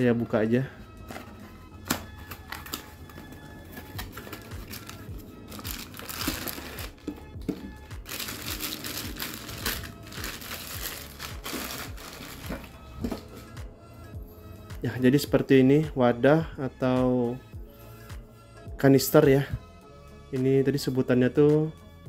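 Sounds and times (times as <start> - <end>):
plastic bag crinkling: 4.0 - 7.1, 8.0 - 12.8
cardboard box being opened: 5.5 - 7.0.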